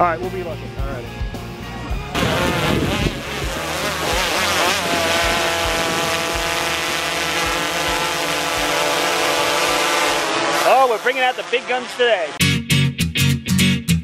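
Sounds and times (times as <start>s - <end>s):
drone propellers buzzing: 2.0s - 12.4s.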